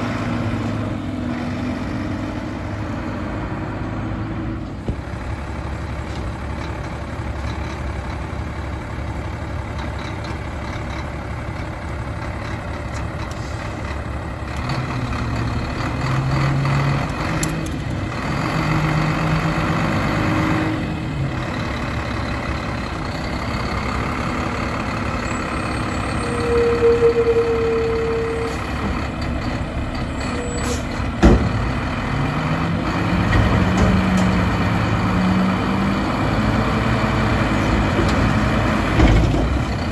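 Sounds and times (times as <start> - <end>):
garbage truck engine revving: 14.5 - 39.9.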